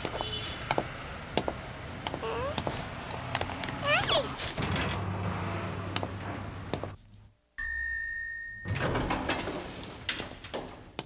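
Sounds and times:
elevator arrival chime: 7.6s - 8.9s.

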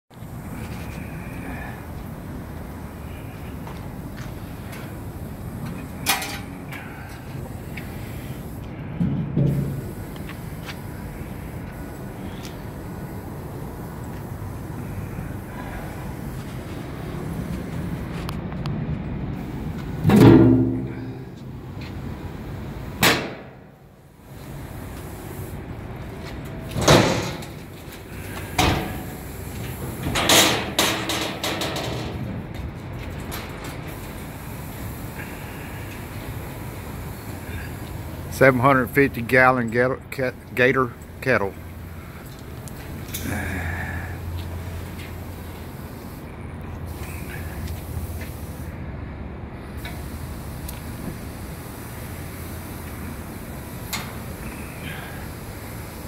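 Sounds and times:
steady background hiss: 0.1s - 56.0s
metallic clank: 6.0s - 6.6s, 20.0s - 21.1s.

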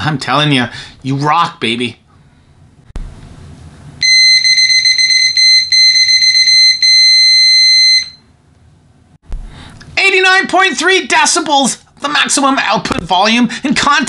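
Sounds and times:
multimeter continuity beep: 4.0s - 8.3s.

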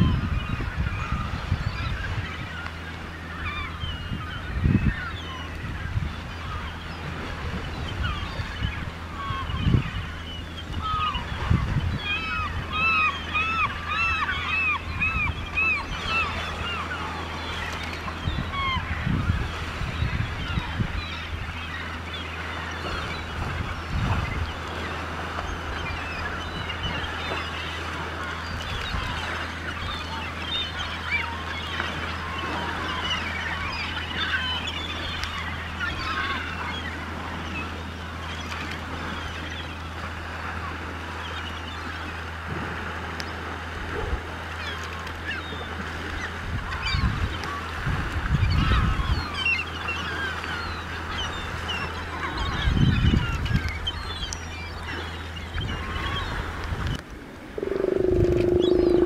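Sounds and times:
flock of gulls calling: 0.0s - 59.0s
steady low hum: 50.0s - 59.0s
low rushes of sound: 57.0s - 59.0s.

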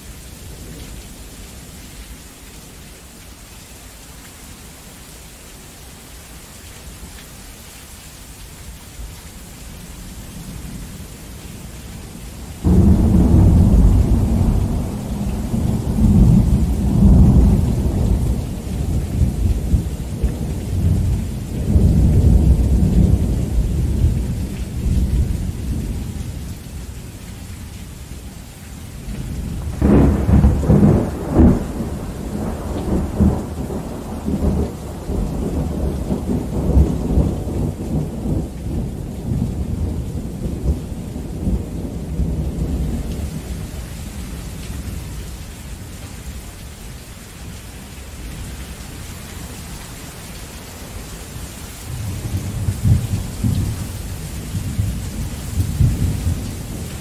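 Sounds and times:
heavy rain falling: 0.0s - 57.0s
rolling thunder rumbles: 12.6s - 26.4s, 29.1s - 43.7s, 51.9s - 57.0s
sharp thunder crack: 29.5s - 39.8s.

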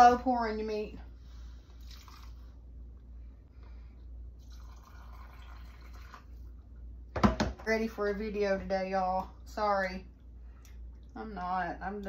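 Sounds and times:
liquid trickling into jar: 1.8s - 2.4s, 4.4s - 6.4s.

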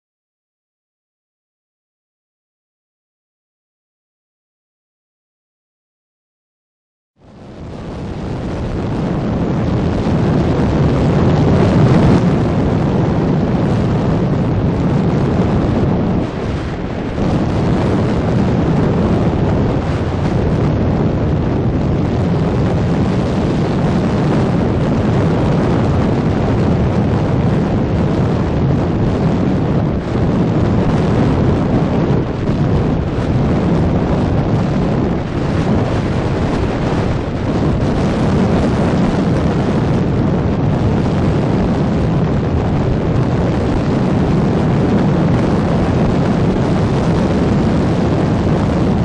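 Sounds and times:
boat engine drone: 7.2s - 49.0s
wind buffeting the microphone: 7.2s - 49.0s.

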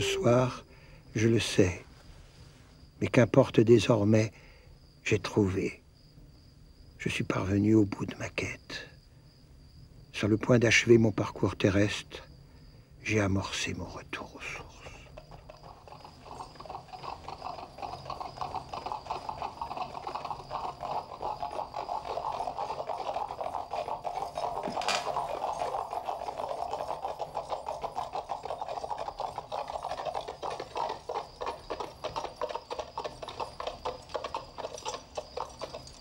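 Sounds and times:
horse hooves clattering: 15.0s - 36.0s.

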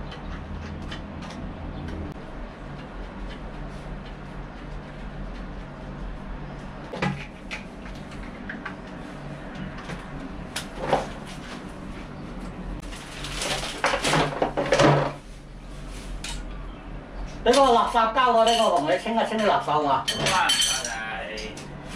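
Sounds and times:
steady low hum: 0.0s - 21.9s
rustling and clattering: 6.9s - 16.5s.

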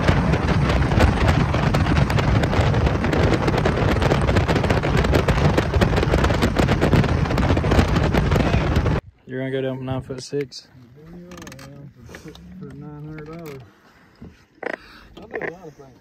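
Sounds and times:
wind buffeting microphone: 0.0s - 9.1s.

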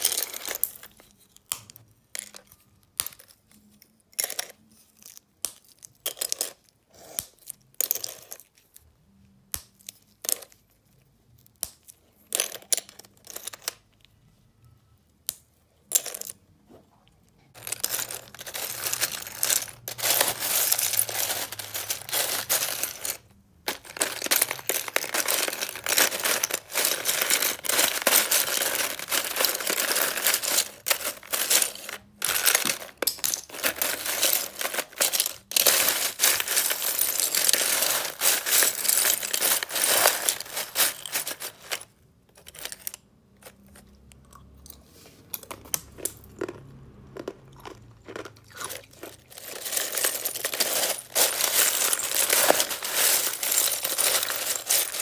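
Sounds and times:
ice crackling and clinking: 17.5s - 41.8s, 48.1s - 55.0s.

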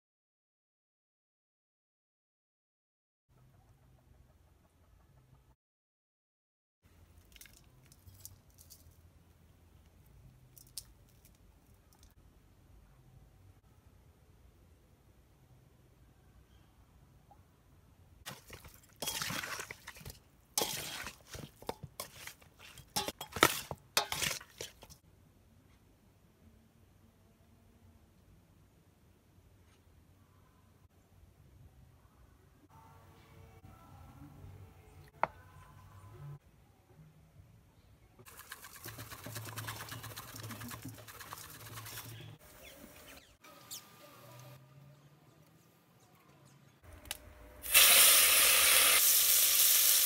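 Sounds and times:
faint handling sounds: 7.0s - 12.2s
metal spoon scraping steel bowl: 19.0s - 19.4s, 20.0s - 25.0s, 38.4s - 42.4s
spice shaker rattling: 38.3s - 42.2s.

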